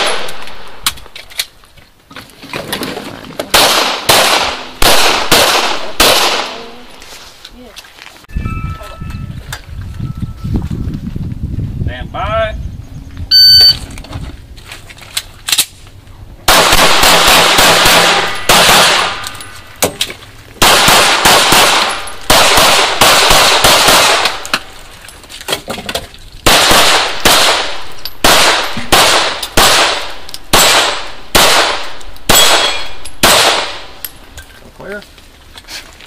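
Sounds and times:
pistol shots with echo: 3.5s - 6.8s, 16.5s - 19.4s, 20.6s - 24.5s, 26.4s - 34.0s.

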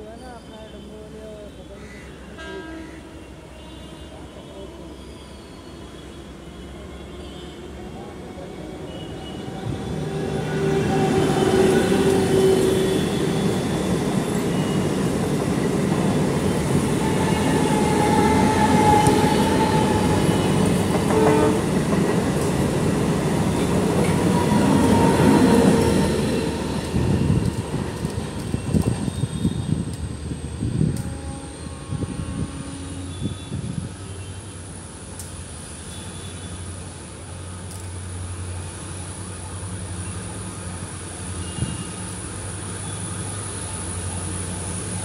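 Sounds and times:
diesel locomotive engine: 0.0s - 45.0s
train wheels rumbling on rails: 7.9s - 34.0s.

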